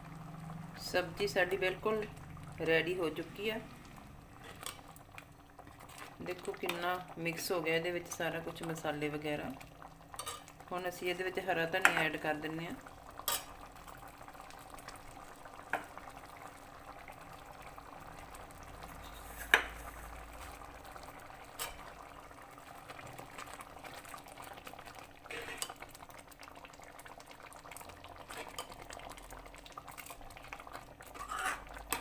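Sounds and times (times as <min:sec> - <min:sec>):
curry bubbling in pan: 0:00.0 - 0:32.0
metal ladle clinking on pan: 0:10.2 - 0:10.5, 0:13.3 - 0:13.5, 0:21.6 - 0:21.9.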